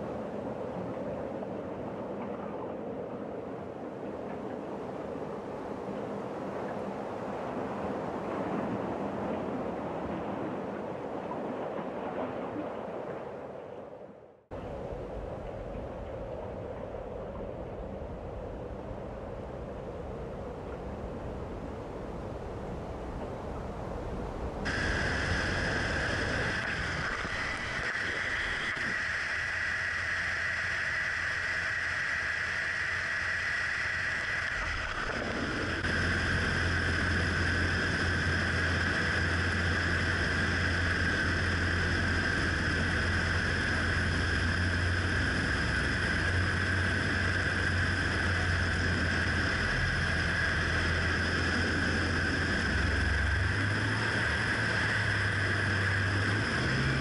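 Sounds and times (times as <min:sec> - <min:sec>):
engine and propeller droning: 0:00.0 - 0:57.0
wind rushing: 0:24.0 - 0:57.0.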